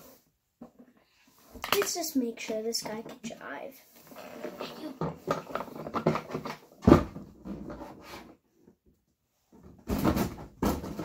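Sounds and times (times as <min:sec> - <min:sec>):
toy car knocks and clatter: 0:01.6 - 0:02.1, 0:04.4 - 0:07.8.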